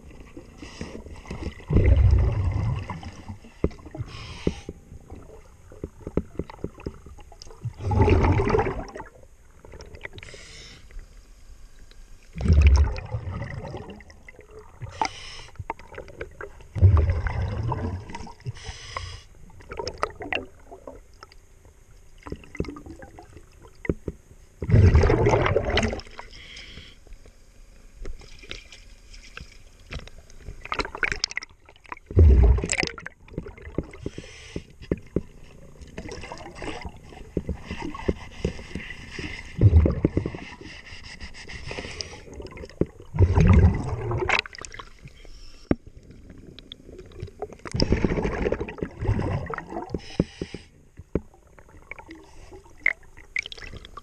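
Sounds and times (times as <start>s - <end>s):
exhaled air bubbles underwater: 0.0s - 10.3s, 12.3s - 18.7s, 19.4s - 21.3s, 22.2s - 23.9s, 24.6s - 26.3s, 30.6s - 34.1s, 34.8s - 38.5s, 39.5s - 40.6s, 42.2s - 45.1s, 45.9s - 50.1s, 51.1s - 54.0s.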